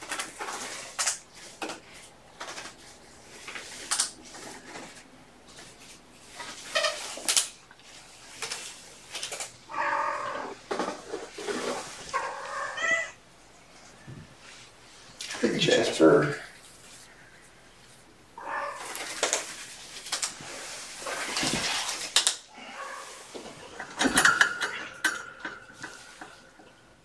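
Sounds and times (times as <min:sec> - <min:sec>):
cat meowing: 0:09.7 - 0:10.6, 0:12.1 - 0:13.2, 0:18.4 - 0:19.3.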